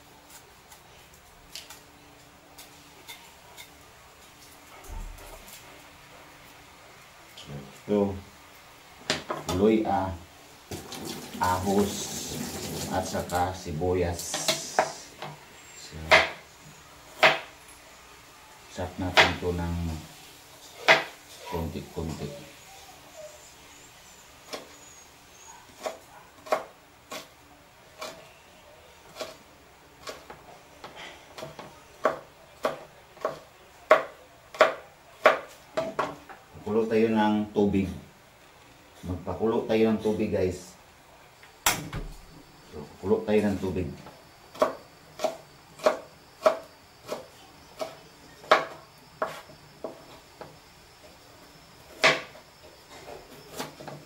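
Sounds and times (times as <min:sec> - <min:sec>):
knife chopping on plastic board: 0:16.1 - 0:16.4, 0:31.4 - 0:36.1.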